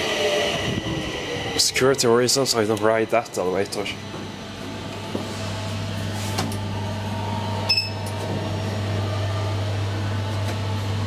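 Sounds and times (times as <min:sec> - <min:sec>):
low electrical hum: 0:00.6 - 0:11.0
high electronic beep: 0:07.7 - 0:08.0.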